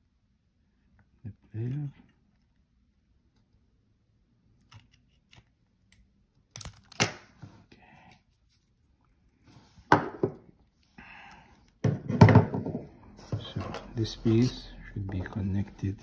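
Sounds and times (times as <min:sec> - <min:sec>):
pliers clicking on metal: 0:06.5 - 0:07.1.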